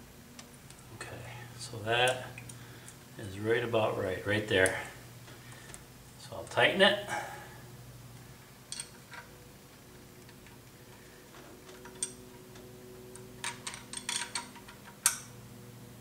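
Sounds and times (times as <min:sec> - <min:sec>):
steady low hum: 0:00.0 - 0:16.0
hand tools clicking on metal: 0:11.6 - 0:15.3.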